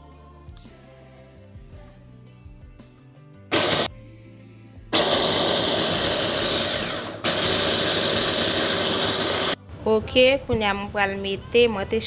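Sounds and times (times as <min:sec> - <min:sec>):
electric food chopper running: 0:03.5 - 0:03.9, 0:04.9 - 0:09.6.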